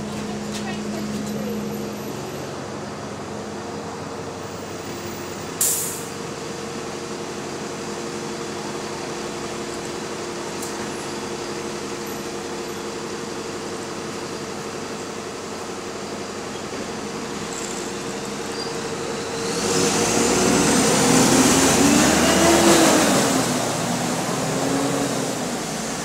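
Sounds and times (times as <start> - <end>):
bus engine with fan whine: 0.0 - 26.0
air brakes hissing: 5.6 - 6.2.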